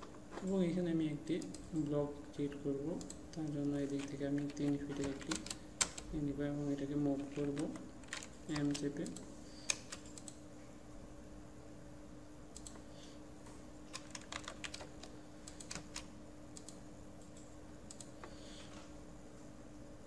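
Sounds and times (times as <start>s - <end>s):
faint steady hum: 0.0s - 20.0s
keyboard keystrokes: 7.2s - 10.4s, 13.9s - 18.2s.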